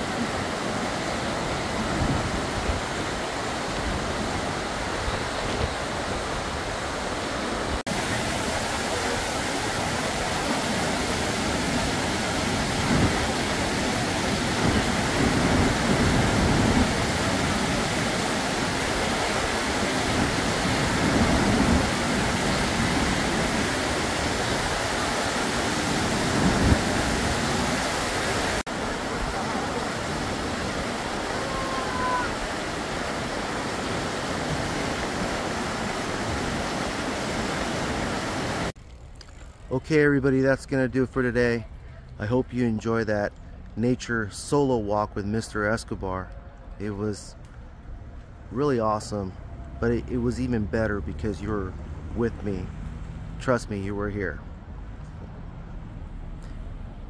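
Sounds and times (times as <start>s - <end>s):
water rushing over boulders: 0.0s - 38.8s.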